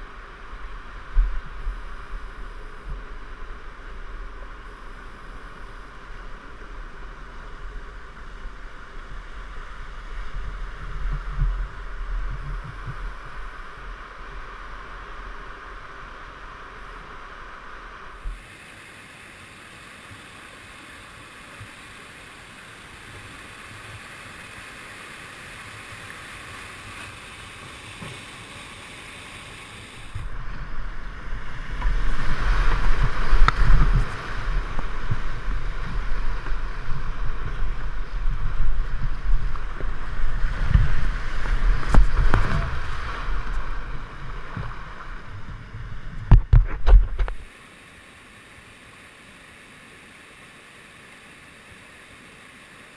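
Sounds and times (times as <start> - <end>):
wind buffeting the camera: 0.0 - 18.4, 29.8 - 47.5
whitewater rushing and splashing: 3.0 - 52.9.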